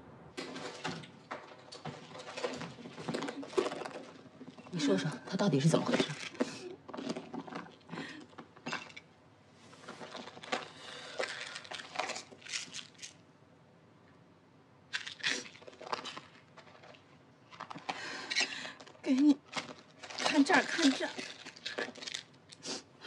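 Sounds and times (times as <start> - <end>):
packaging rustling and crinkling: 0.4 - 4.8, 9.7 - 13.2, 15.0 - 22.6.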